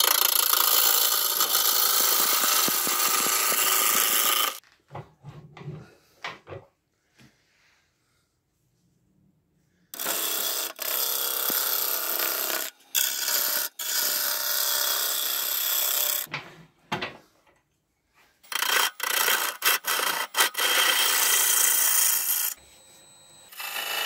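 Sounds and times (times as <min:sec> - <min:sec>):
gouge cutting wood on a lathe: 0:00.0 - 0:04.6, 0:10.0 - 0:16.2, 0:18.5 - 0:22.6, 0:23.5 - 0:24.0.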